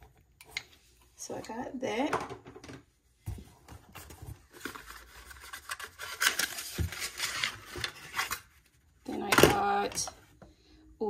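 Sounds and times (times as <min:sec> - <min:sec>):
cardboard rustling and scraping: 0:03.2 - 0:08.8.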